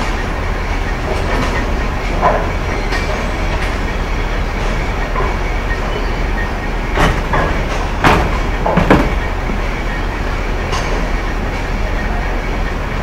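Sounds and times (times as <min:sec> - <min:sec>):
bowling balls rolling: 0:00.0 - 0:10.9
bowling pins crashing: 0:07.0 - 0:09.4.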